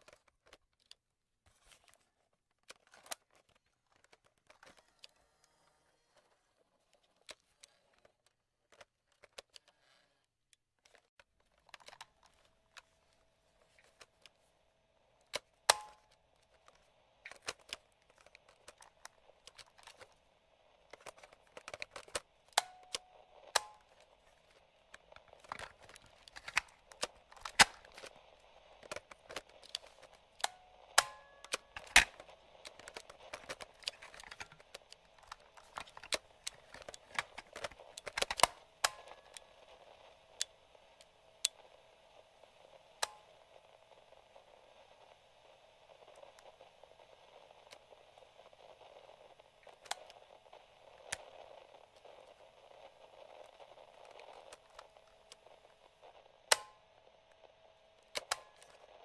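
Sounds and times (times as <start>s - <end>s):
faint radio static: 0.0s - 59.0s
plastic switch clicks: 15.3s - 16.2s, 20.9s - 24.0s, 56.5s - 56.8s.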